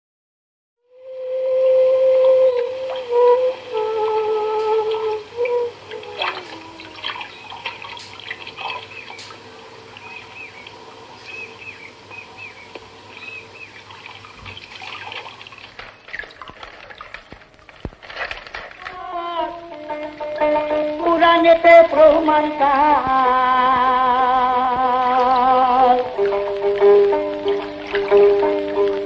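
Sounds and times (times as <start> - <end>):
faint steady tone: 0.9 - 15.5
water: 0.9 - 29.0.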